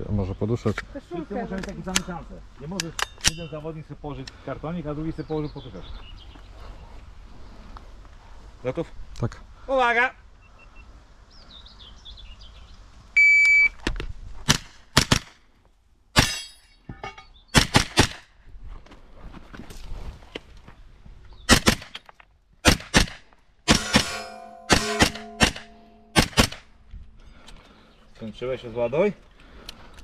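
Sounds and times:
shot timer beep: 13.2 - 13.7
carbine gunshots: 14.5 - 15.3, 17.6 - 18.2, 21.5 - 22.0, 22.6 - 26.7.

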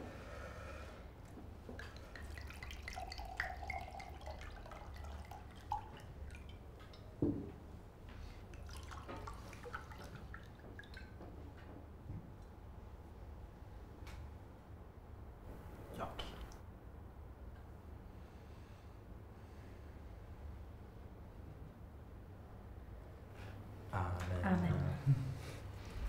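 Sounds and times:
liquid pouring into glasses: 1.7 - 7.2, 8.5 - 11.2
knock: 7.2 - 7.5.

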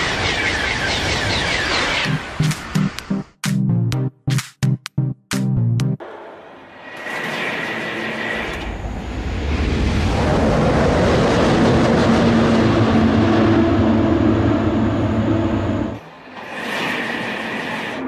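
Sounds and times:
maglev train rushing past: 6.0 - 18.0.

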